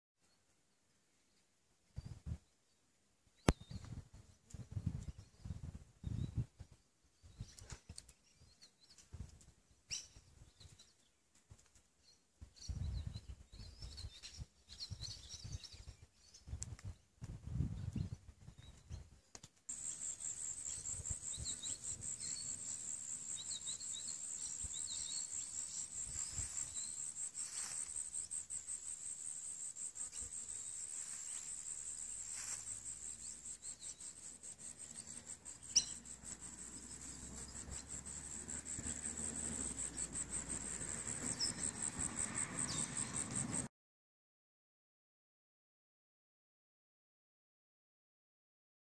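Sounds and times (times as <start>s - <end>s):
wind rumbling on microphone: 3.5s - 7.7s, 12.5s - 19.2s, 25.9s - 26.9s
birds chirping: 19.7s - 43.6s
high-pitched insect trill: 19.7s - 43.7s.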